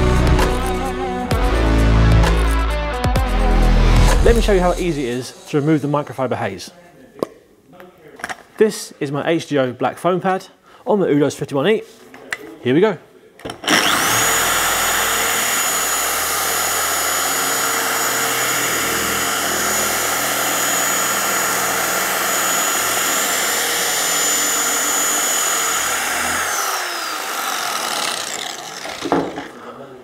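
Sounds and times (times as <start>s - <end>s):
polisher whining: 13.6s - 29.5s.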